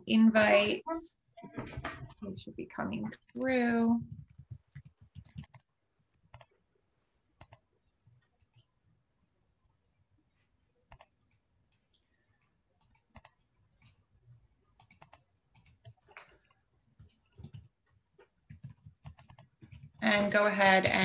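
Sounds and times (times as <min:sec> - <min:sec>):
keyboard and mouse clicks: 0:03.2 - 0:05.7, 0:06.3 - 0:06.6, 0:07.4 - 0:07.7, 0:10.9 - 0:14.0, 0:14.8 - 0:20.3.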